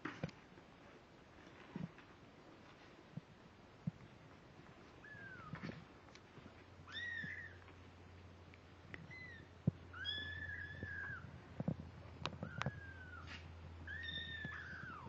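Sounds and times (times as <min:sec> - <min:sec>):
kittens mewing: 0:06.9 - 0:07.6, 0:12.3 - 0:15.0.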